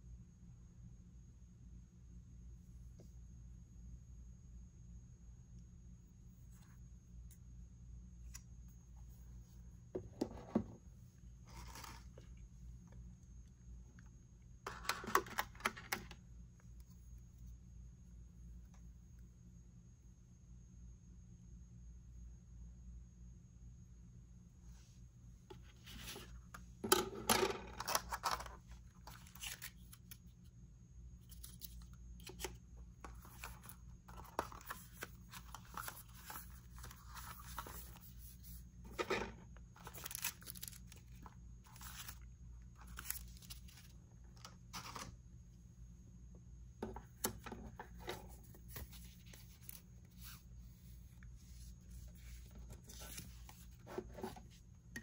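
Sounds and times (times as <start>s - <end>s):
packaging tearing and rustling: 39.8s - 42.2s.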